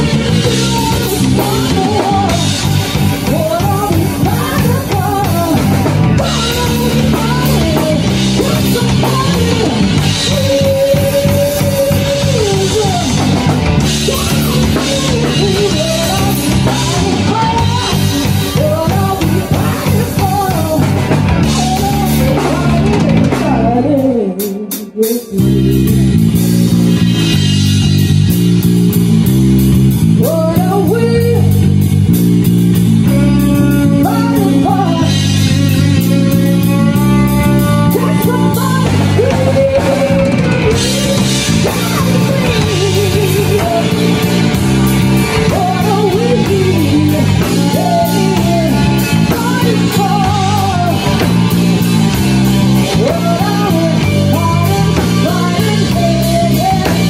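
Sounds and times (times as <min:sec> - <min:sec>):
lead vocal singing: 0:00.0 - 0:25.9, 0:33.0 - 0:57.0
drum kit beat: 0:00.0 - 0:57.0
electric bass: 0:00.0 - 0:57.0
electric guitar: 0:00.0 - 0:57.0.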